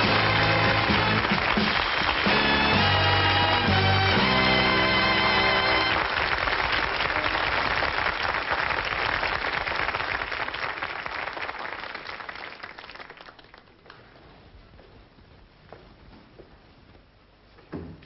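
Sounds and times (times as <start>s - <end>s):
audience applause: 0.0s - 14.1s
faint room noise: 5.4s - 18.0s.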